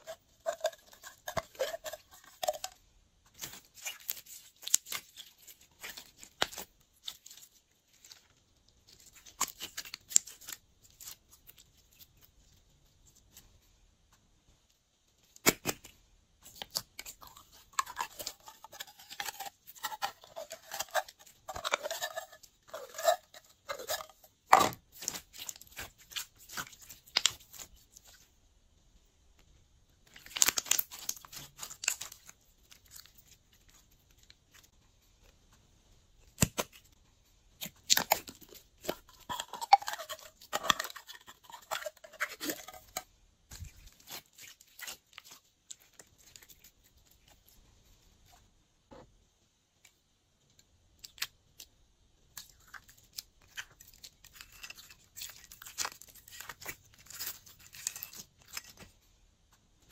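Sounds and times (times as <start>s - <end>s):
slime crackling and popping: 30.1s - 34.7s.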